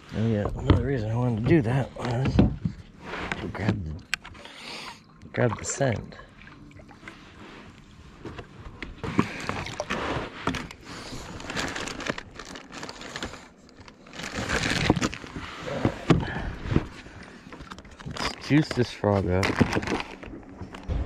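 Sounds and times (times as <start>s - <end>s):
plastic rustling: 9.2s - 20.4s.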